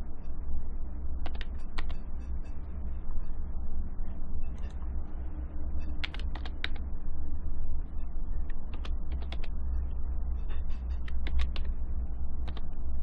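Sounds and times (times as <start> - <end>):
steady low hum: 0.0 - 13.0
keyboard key clicks: 1.2 - 2.0, 6.0 - 6.8, 8.7 - 9.5, 11.0 - 11.7, 12.4 - 12.7.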